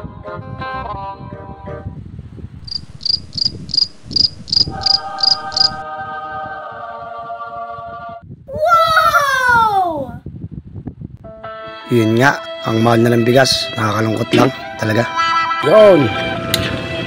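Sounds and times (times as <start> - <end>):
high cricket-like chirps: 2.6 - 5.8.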